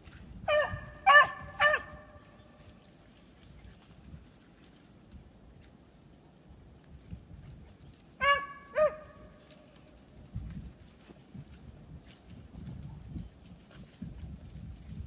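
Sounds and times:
dog barking and baying: 0.5 - 2.0, 8.2 - 9.2.

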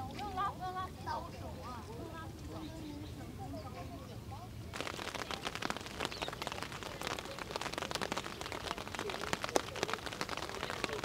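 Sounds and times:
rain drops pattering: 4.7 - 11.0.

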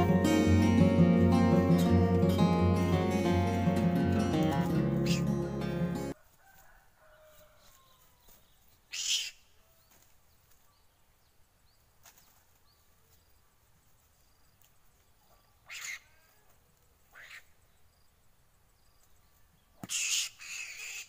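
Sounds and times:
small birds chirping: 7.6 - 21.0.

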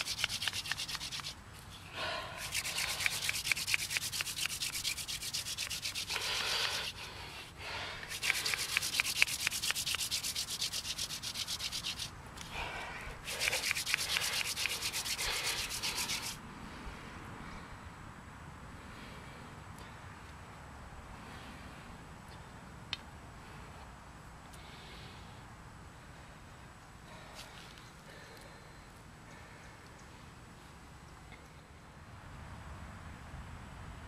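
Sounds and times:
spindle rasping on wooden board: 0.0 - 1.4, 2.4 - 7.0, 8.1 - 12.1, 13.2 - 16.4.

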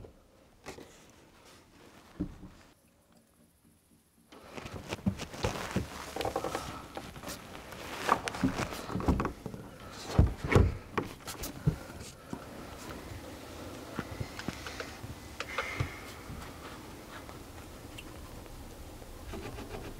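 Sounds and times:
clatter of objects being handled: 4.4 - 13.0
heavy thumps: 8.1 - 11.9.

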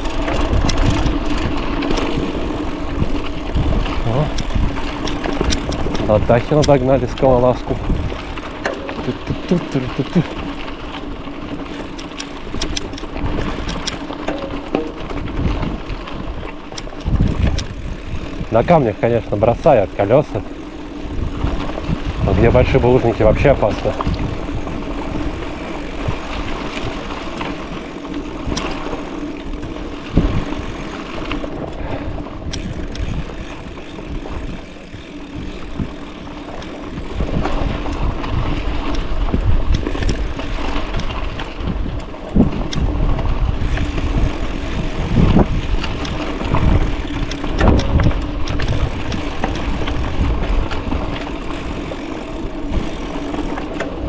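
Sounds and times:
bike knocks and rattles: 0.0 - 54.0.

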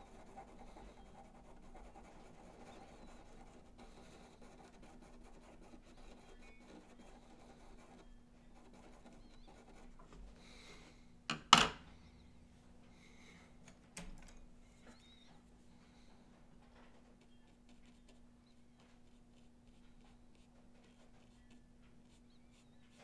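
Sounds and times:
pencil scratching on paper: 0.0 - 10.0, 17.2 - 18.2, 19.0 - 23.0.

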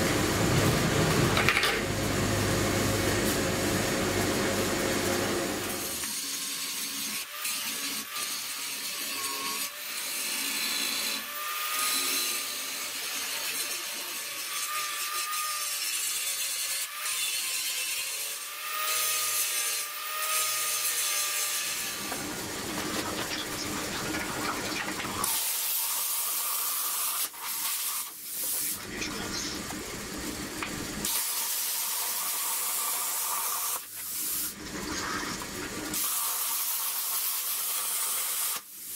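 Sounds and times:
power tools cutting steel: 5.6 - 38.9
plasma cutter hissing: 27.5 - 38.9.

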